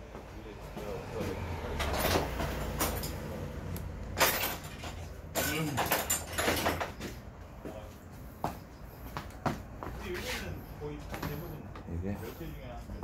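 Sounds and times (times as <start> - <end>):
clatter of things handled: 4.2 - 7.2.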